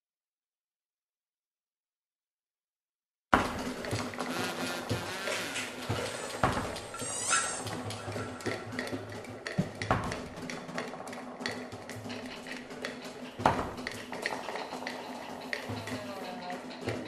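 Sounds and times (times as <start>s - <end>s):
scattered clicks and knocks: 3.4s - 17.0s.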